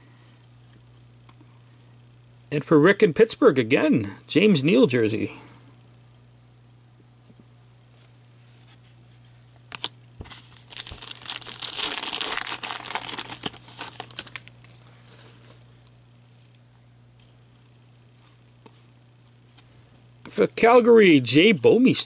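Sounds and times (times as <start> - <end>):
wrapper crinkling and tearing: 9.7 - 14.8.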